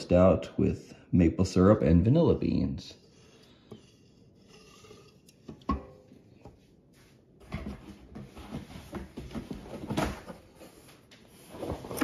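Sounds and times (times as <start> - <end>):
cardboard rustling: 7.4 - 12.0.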